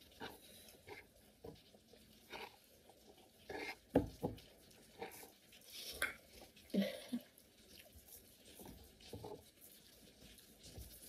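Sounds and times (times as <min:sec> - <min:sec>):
chewing and mouth noises: 0:04.6 - 0:11.0.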